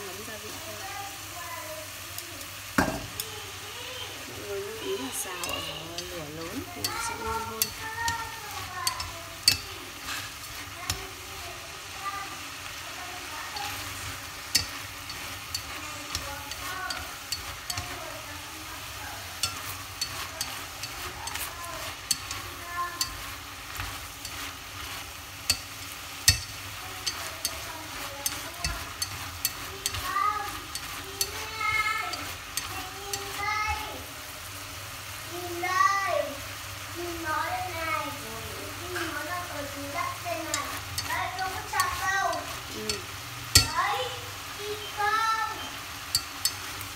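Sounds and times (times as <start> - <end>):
food sizzling in a pot: 0.0 - 46.9
chopsticks scraping a pot: 4.7 - 33.9, 38.9 - 43.8, 46.0 - 46.9.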